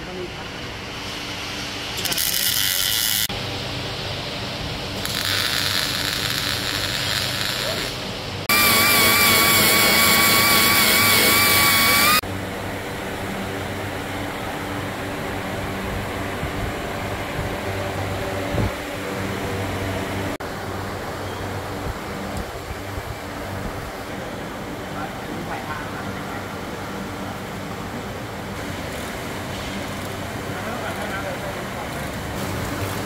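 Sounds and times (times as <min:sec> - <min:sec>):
workshop noise: 0:00.0 - 0:12.6
welder crackling: 0:01.9 - 0:03.3, 0:05.0 - 0:12.2
air grinder whining: 0:02.0 - 0:03.3, 0:05.0 - 0:12.2.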